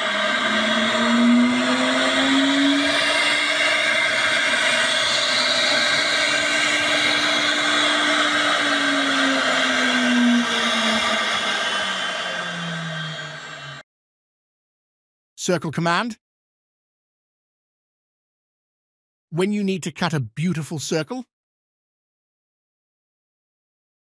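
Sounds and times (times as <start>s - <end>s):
hissy cutting noise: 0.0s - 13.8s
router spindle whining: 0.0s - 13.8s.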